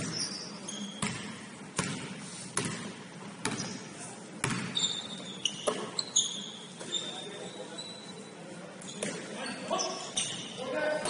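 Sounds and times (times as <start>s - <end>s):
basketball bouncing on gym floor: 0.9s - 3.8s, 4.4s - 6.0s.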